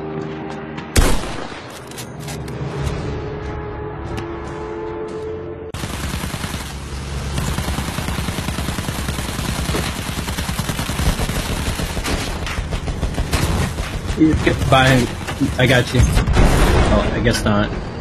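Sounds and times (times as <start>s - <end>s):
music: 0.0s - 1.0s, 2.0s - 5.8s
rapid gunfire: 5.8s - 16.7s.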